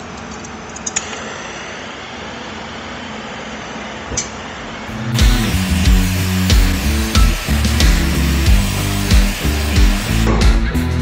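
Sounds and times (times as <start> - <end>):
music with heavy beat: 4.9 - 11.0.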